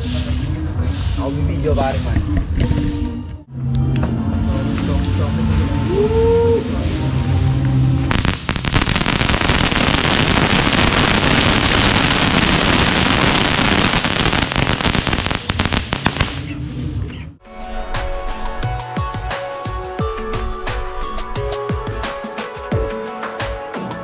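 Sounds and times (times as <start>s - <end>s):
firework crackling: 7.5s - 17.0s.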